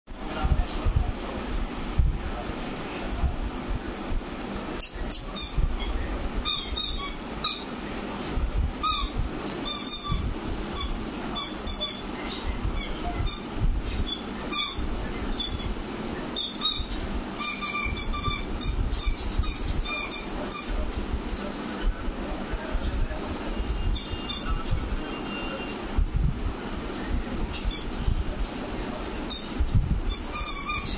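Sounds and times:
squeaky toy squeaks: 5.1s - 7.7s, 8.8s - 12.1s, 16.4s - 20.7s, 24.0s - 24.6s, 30.1s - 30.9s.

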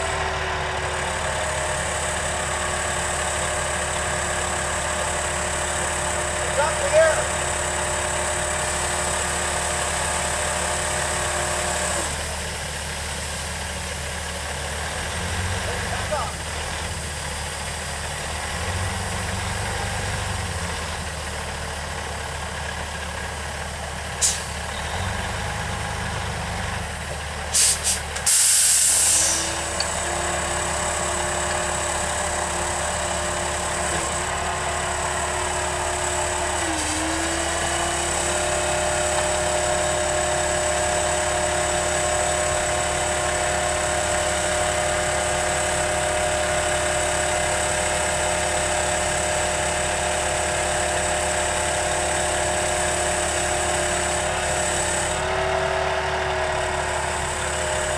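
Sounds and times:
diesel engine idling: 0.0s - 57.9s
air brake hiss: 24.2s - 24.6s, 27.5s - 29.7s.

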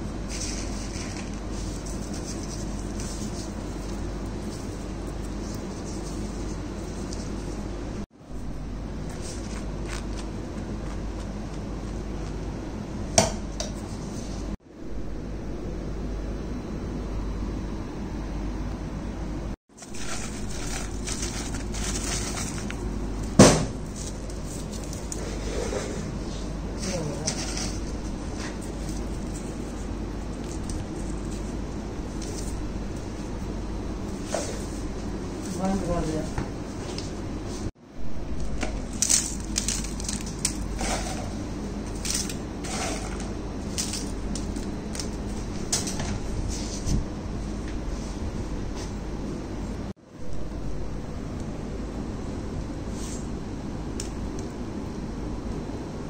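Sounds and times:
steady background hum: 0.0s - 56.0s
rustles and crackles of food on foil: 0.1s - 7.7s, 19.8s - 33.4s, 34.0s - 36.3s, 38.8s - 47.0s
loud sharp knock: 23.4s - 23.8s.

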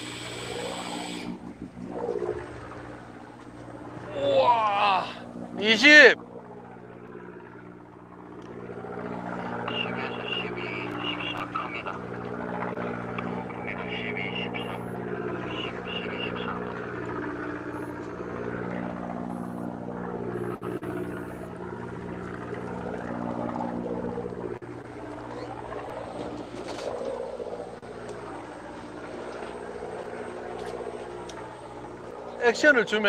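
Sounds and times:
fishing reel cranking: 0.0s - 1.4s
boat engine humming: 0.0s - 33.0s.

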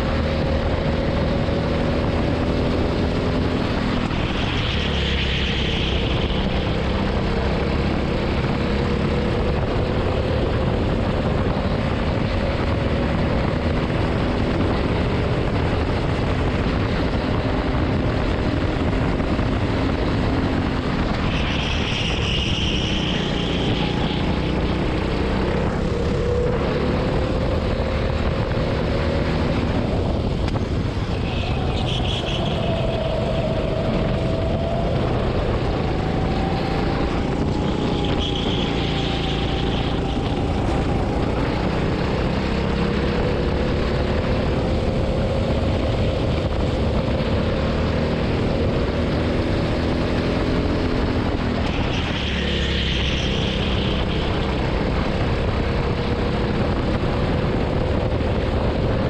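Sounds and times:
go-kart engine revving: 18.0s - 58.9s.

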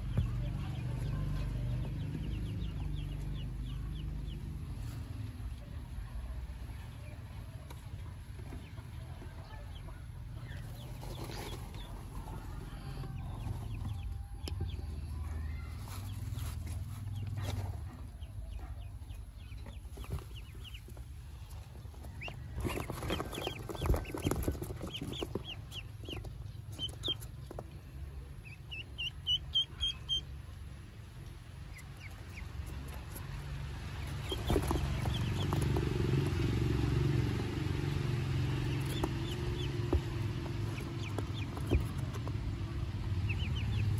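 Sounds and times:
ducklings peeping: 0.0s - 43.9s
knocks and rustles: 19.4s - 27.8s, 34.0s - 36.7s, 38.6s - 42.7s.

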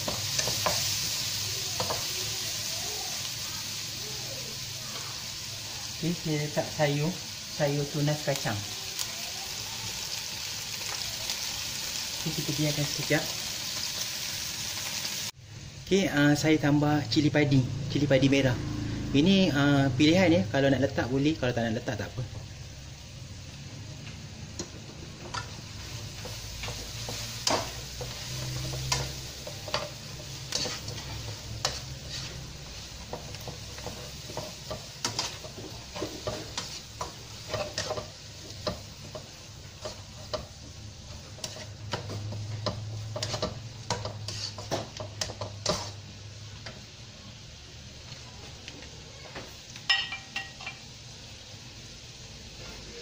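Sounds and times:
food sizzling: 0.0s - 53.0s
spatula scraping a wok: 24.6s - 46.2s.

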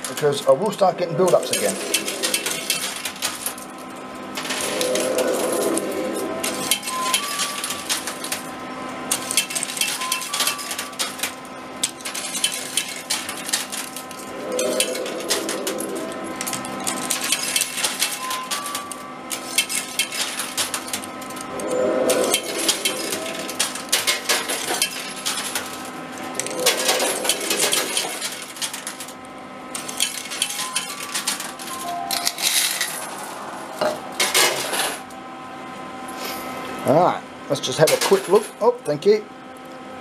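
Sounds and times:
electronic machine hum: 0.6s - 36.1s
coins clinking and clattering: 29.8s - 33.3s.

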